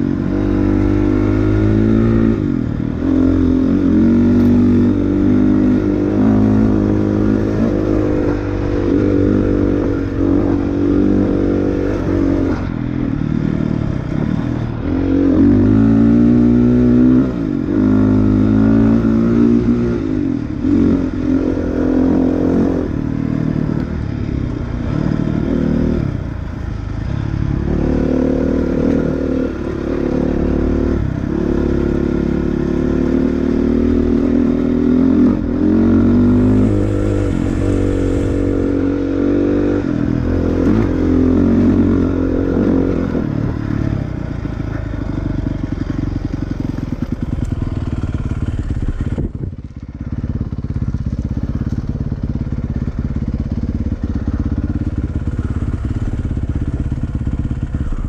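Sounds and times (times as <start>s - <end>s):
dirt bike engine revving: 0.0s - 23.7s, 27.6s - 44.5s.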